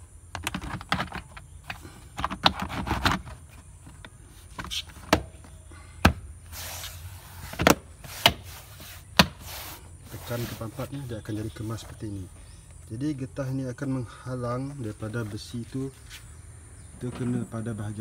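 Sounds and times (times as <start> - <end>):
plastic rubbing and handling: 0.3 - 5.5, 6.5 - 12.2.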